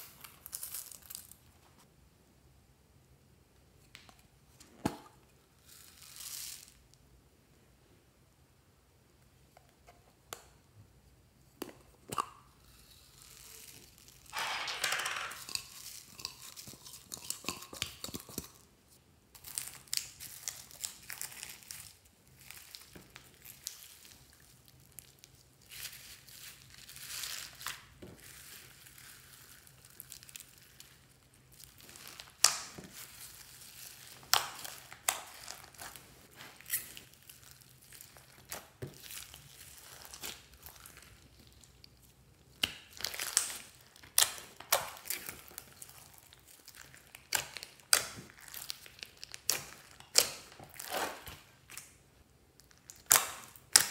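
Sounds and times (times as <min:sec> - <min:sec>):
slime crackling and popping: 0:19.4 - 0:52.0, 0:52.6 - 0:53.9.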